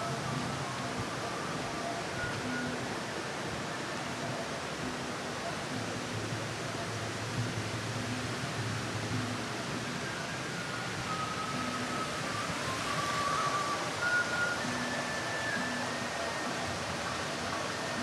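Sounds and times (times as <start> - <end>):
faint background music: 0.0 - 18.0
rushing outdoor noise: 0.0 - 18.0.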